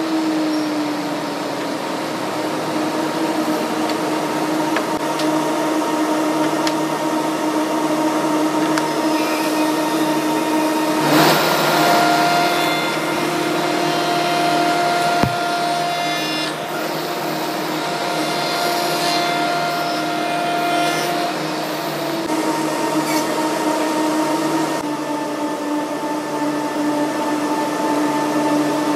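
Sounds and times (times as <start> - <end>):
cutter cutting wood: 8.6 - 23.4
spindle shaper humming: 9.0 - 22.3
sharp knock: 15.2 - 15.6.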